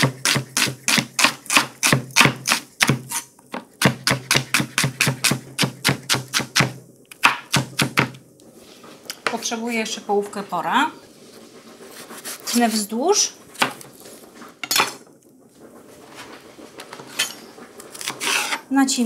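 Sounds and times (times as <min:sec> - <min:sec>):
knife chopping on cutting board: 0:00.0 - 0:03.2, 0:03.8 - 0:08.2.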